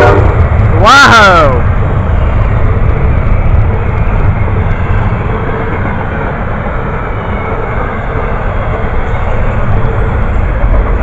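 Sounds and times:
freight train wheels rumbling: 0.0 - 11.0.

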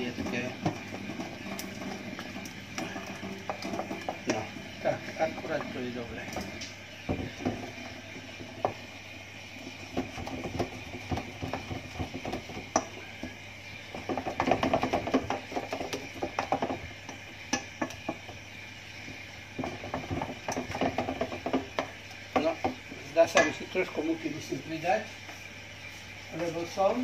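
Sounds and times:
wooden spoon scraping metal bowl: 0.0 - 6.6.

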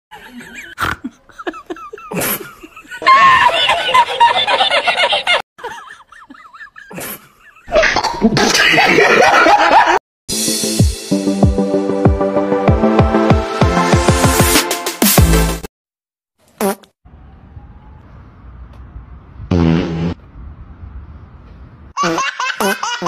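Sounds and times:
loud human laughter: 0.1 - 10.0.

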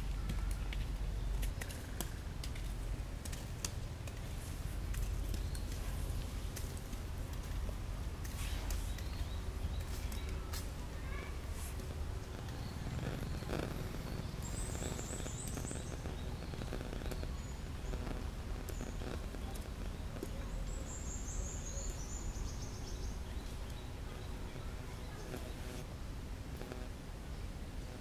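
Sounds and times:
steady low rumble: 0.0 - 28.0
small bird singing: 5.2 - 6.4, 8.4 - 25.8.

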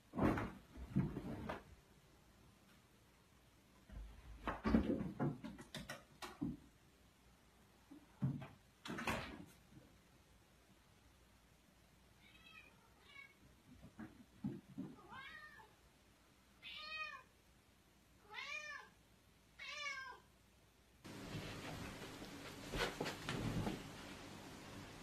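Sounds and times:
knocks and rustles: 0.1 - 1.8, 3.8 - 6.7, 8.0 - 9.7, 13.7 - 15.0, 21.1 - 24.2
cat meowing: 12.2 - 13.4, 15.0 - 15.7, 16.6 - 17.3, 18.2 - 19.0, 19.6 - 20.3
steady hiss: 20.9 - 25.0.

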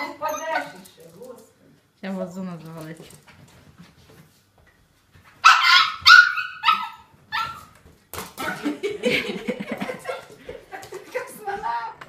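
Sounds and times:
dog barking: 5.4 - 7.7.

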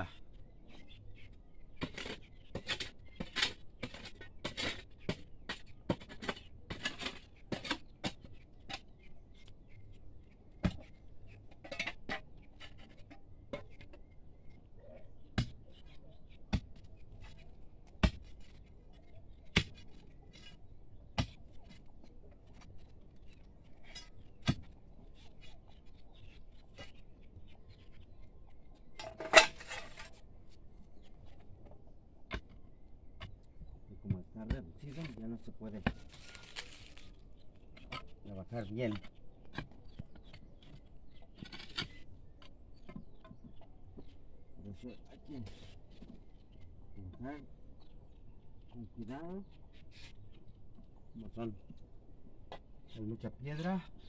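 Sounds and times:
metal tool scraping stony soil: 1.8 - 8.3, 29.0 - 30.2, 34.8 - 37.1.

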